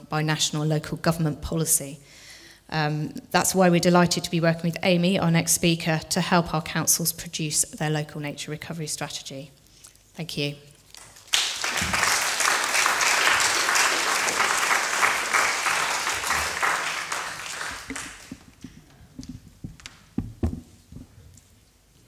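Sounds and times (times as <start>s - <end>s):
audience applauding: 11.0s - 18.5s
knocks: 18.3s - 21.1s.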